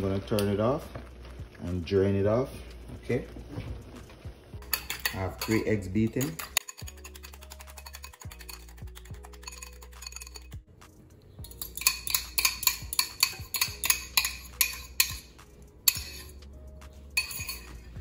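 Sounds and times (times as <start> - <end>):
fork clinking against metal bowl: 4.6 - 10.6, 11.4 - 16.5, 17.2 - 18.0.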